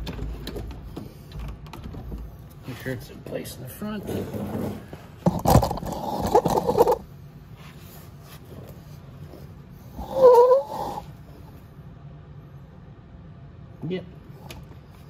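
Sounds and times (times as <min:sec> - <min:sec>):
metal scraping and rattling: 0:02.8 - 0:07.0
faint squeak: 0:10.0 - 0:11.1
short wavering squeal: 0:10.0 - 0:11.1.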